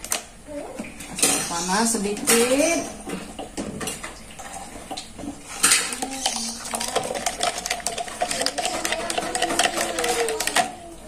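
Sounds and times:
spoon stirring in plastic cup: 5.7s - 10.8s.

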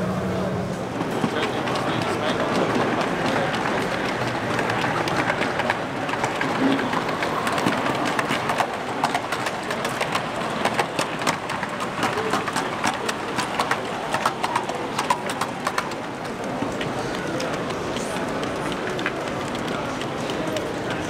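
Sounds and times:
murmur of crowd in hall: 0.0s - 21.0s
model train wheels clicking: 1.0s - 21.0s.

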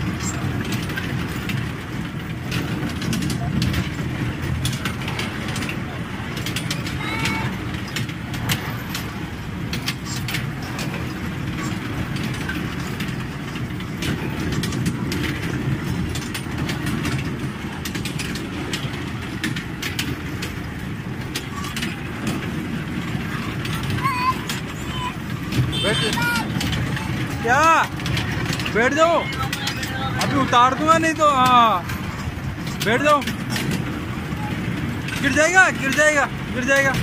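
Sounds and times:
mini train rumbling on track: 0.0s - 37.0s
train wheels clicking and rattling: 0.0s - 37.0s.

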